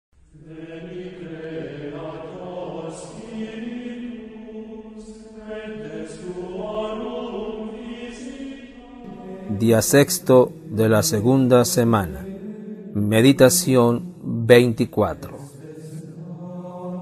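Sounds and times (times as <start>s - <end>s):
slow sung chant: 0.2s - 17.0s.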